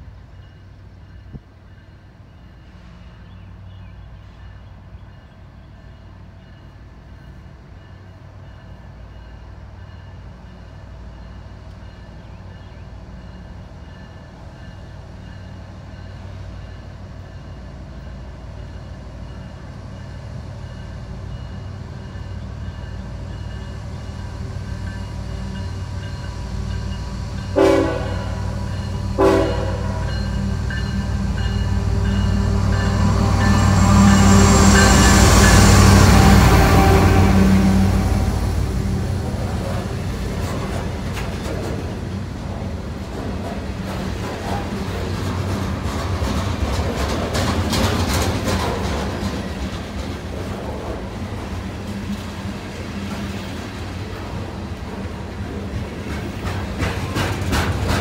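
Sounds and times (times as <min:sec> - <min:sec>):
diesel locomotive engine rumble: 0:00.0 - 0:58.0
train horn blasts: 0:27.4 - 0:39.0.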